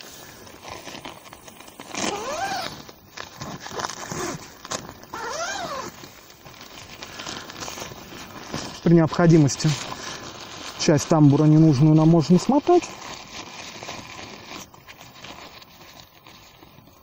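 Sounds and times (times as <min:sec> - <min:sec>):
tent fabric rustling: 0:00.0 - 0:17.0
tent zipper pulled open: 0:00.6 - 0:08.8.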